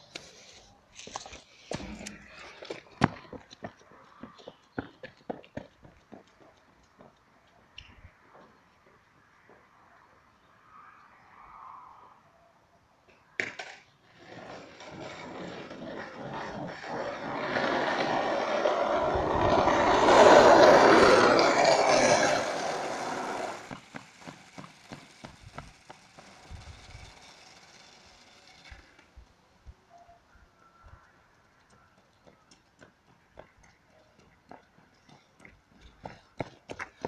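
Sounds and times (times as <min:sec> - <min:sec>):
wheels rolling on road: 0:13.1 - 0:29.8, 0:31.0 - 0:37.0.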